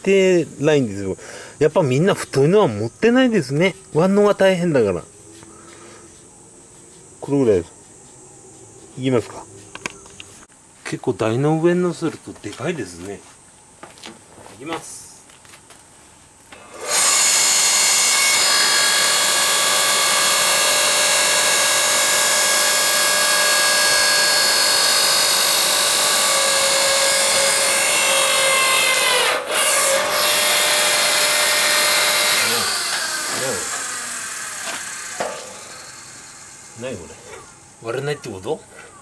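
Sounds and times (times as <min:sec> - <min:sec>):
log splitter motor and pump: 0:16.5 - 0:37.5.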